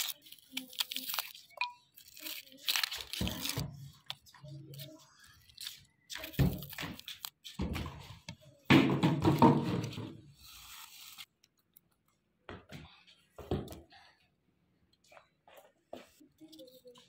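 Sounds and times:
onion skins rustling: 0.0s - 7.7s.

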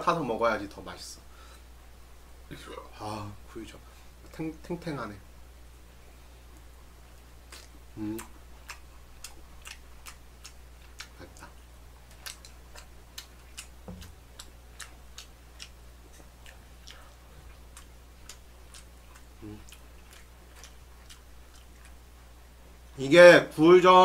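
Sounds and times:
low electrical hum: 0.0s - 24.0s
mouth chewing wetly: 6.6s - 22.6s.

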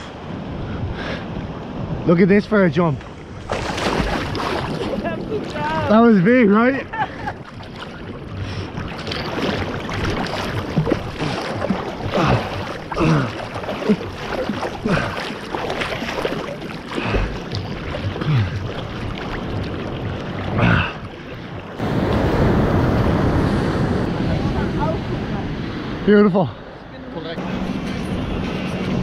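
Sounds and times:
seawater sloshing and splashing: 3.0s - 22.6s.

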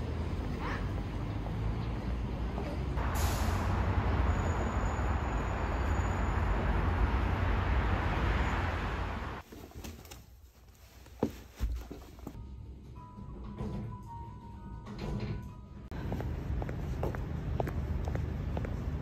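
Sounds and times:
city traffic noise: 0.0s - 9.5s, 15.2s - 19.0s
footsteps on wooden floor: 11.0s - 12.4s, 16.0s - 18.9s.

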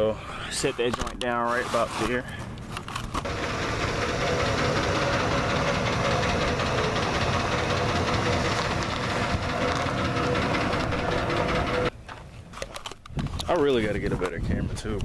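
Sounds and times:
pickup truck engine running: 3.2s - 11.9s.

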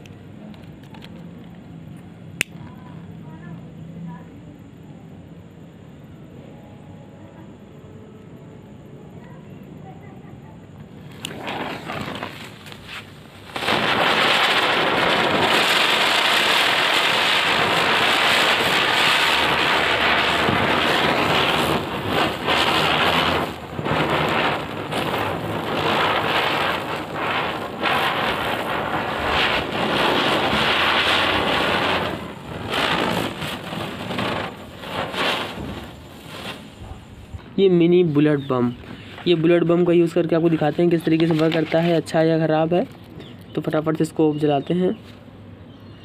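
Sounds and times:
firework spinner hissing sparks: 10.7s - 44.2s.

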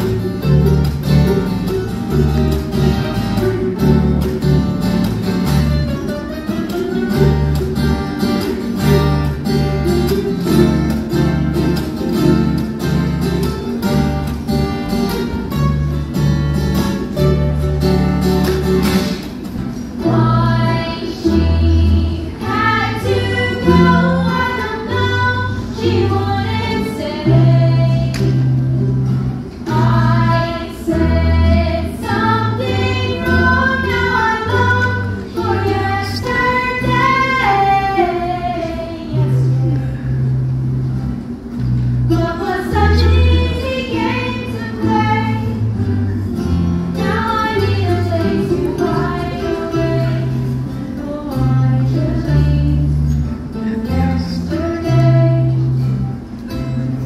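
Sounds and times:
ukuleles and guitar strumming: 0.0s - 57.0s
girls singing: 19.7s - 28.8s, 29.6s - 40.0s, 42.1s - 46.1s, 46.9s - 56.0s.

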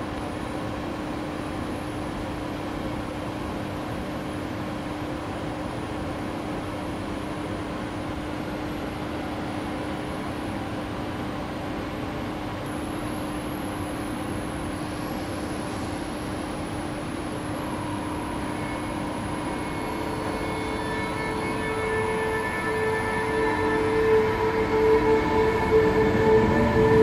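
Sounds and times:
electric locomotive humming: 4.8s - 27.0s
high whining tones: 14.8s - 27.0s.

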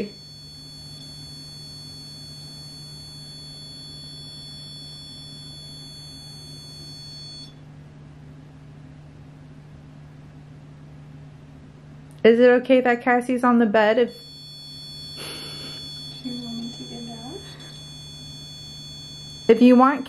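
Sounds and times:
high-pitched electronic alarm tone: 0.0s - 7.5s, 14.1s - 20.0s
low steady hum: 0.0s - 20.0s.

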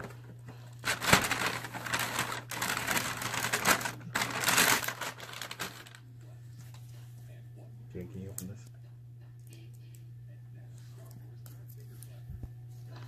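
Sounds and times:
paper bag rustling: 0.8s - 6.0s.

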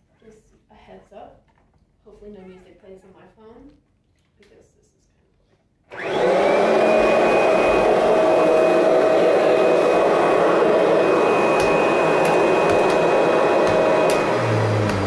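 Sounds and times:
vacuum cleaner motor whining: 5.9s - 15.0s.

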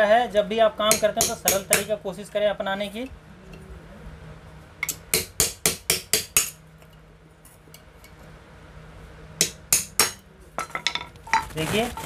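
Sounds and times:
hammer striking metal cover: 0.9s - 1.9s, 4.8s - 6.6s, 9.4s - 11.1s.

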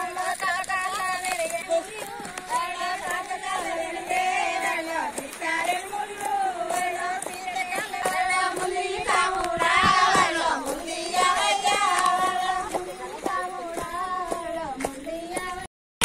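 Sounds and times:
women singing together: 0.0s - 15.7s
hand claps: 5.1s - 15.7s.

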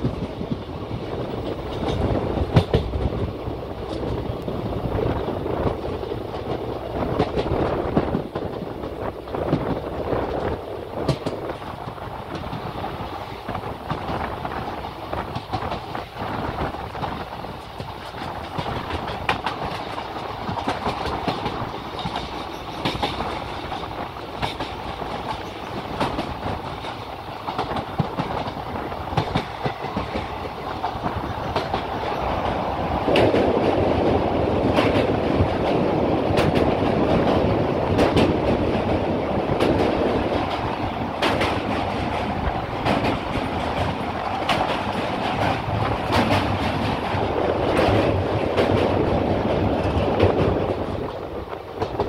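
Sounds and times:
train coaches rumbling: 0.0s - 52.0s
wheels clicking over rail joints: 0.0s - 52.0s.

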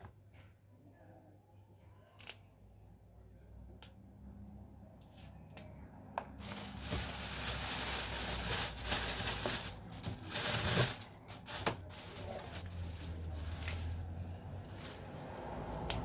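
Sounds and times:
plastic bag crinkling: 6.4s - 15.1s.

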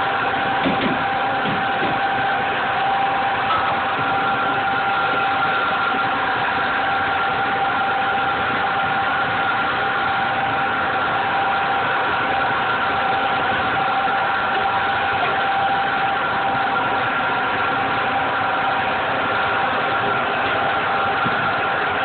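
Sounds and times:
kitchen equipment drone: 0.0s - 22.0s.

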